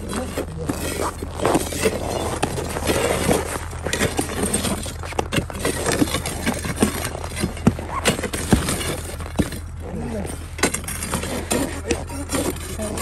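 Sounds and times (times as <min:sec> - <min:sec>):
pry bars clunking on ice: 0:00.0 - 0:13.0
steady low hum: 0:00.0 - 0:13.0.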